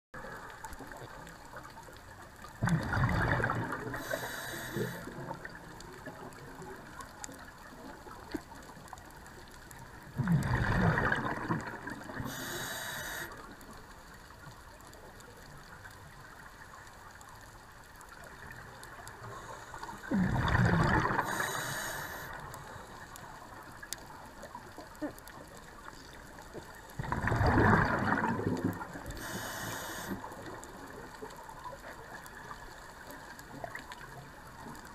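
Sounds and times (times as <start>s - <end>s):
low steady underwater hiss: 0.2s - 34.9s
scuba exhalation bubbling: 2.6s - 5.6s, 10.1s - 13.2s, 20.0s - 22.3s, 27.0s - 30.5s
short thin regulator hiss: 12.3s - 13.3s, 21.3s - 22.4s, 29.2s - 30.2s.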